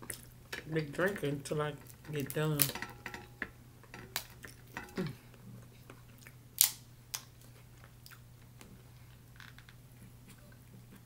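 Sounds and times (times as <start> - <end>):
crab shells cracking by hand: 0.0 - 5.1, 5.9 - 8.7.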